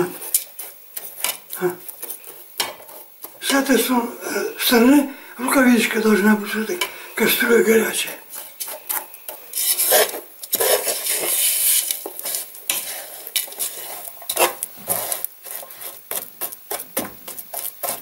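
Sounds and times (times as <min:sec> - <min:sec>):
metal spoon scraping sugar in pot: 0:00.0 - 0:04.1, 0:08.2 - 0:18.0.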